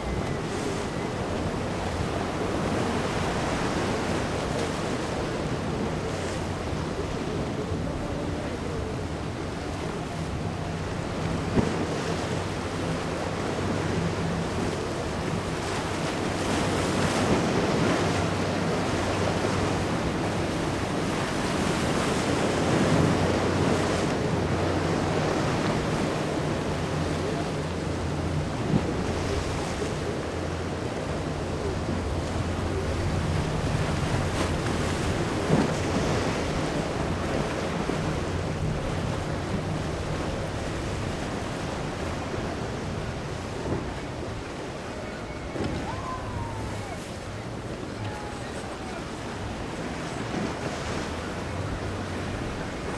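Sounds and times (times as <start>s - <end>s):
boat engines droning: 0.0s - 52.9s
surf breaking: 10.9s - 52.9s.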